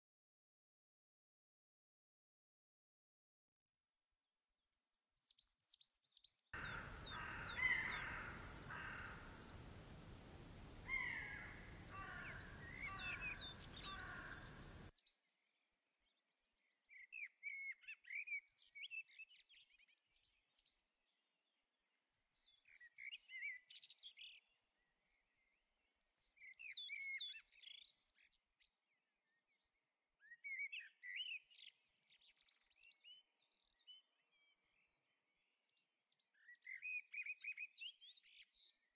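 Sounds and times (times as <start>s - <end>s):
steady hiss: 6.6s - 14.9s
songbirds singing: 6.6s - 15.0s.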